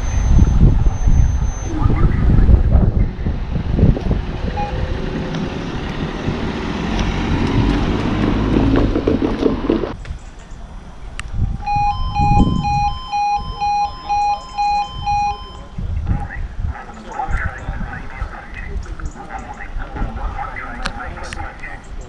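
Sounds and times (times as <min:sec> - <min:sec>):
pulsing crossing alarm beep: 0:00.0 - 0:02.7, 0:04.5 - 0:05.2, 0:11.6 - 0:15.9
high warbling tone: 0:00.0 - 0:03.6, 0:11.6 - 0:15.9
car road noise: 0:00.0 - 0:22.0.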